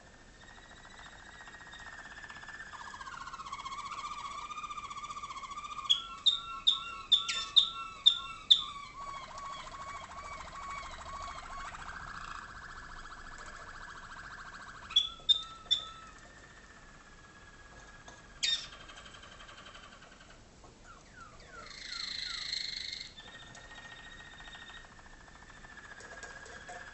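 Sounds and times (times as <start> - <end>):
canaries singing: 0.0 - 26.9
sharp loud bird notes: 0.5 - 16.9.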